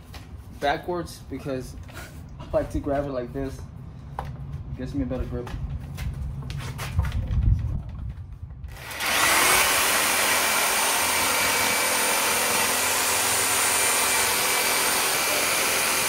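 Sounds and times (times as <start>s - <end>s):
reciprocating saw cutting wood: 8.7s - 16.0s.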